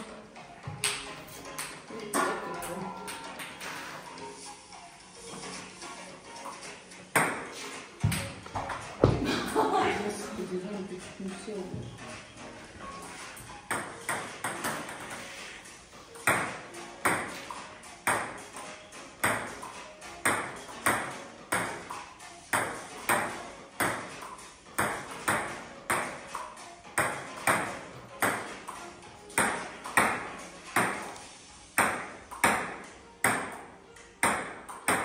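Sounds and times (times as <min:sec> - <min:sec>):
table tennis ball hits: 0:00.7 - 0:03.9, 0:07.1 - 0:09.7, 0:13.1 - 0:15.5, 0:16.2 - 0:35.0.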